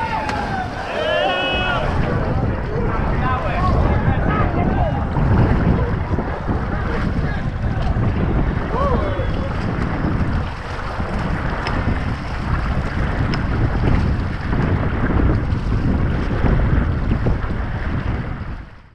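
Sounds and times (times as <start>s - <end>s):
river water rushing: 0.0s - 4.2s
wind buffeting microphone: 0.0s - 18.9s.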